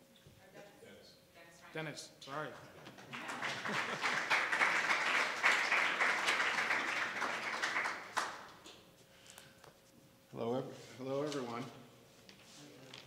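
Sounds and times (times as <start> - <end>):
audience applauding: 3.0 - 8.6.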